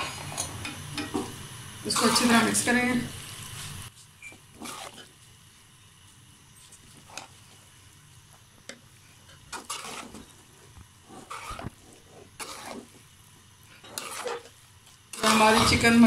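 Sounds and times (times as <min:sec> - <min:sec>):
metal spatula scraping a pan: 0:01.9 - 0:02.6, 0:04.6 - 0:05.1, 0:09.3 - 0:13.0, 0:13.8 - 0:16.0.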